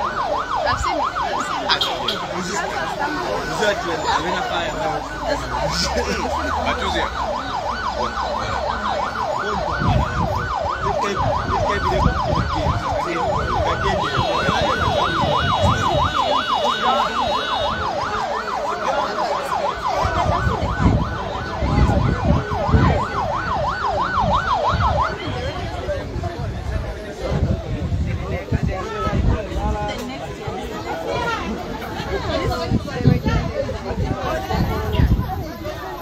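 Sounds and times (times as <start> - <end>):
emergency vehicle siren yelping: 0.0 - 27.5.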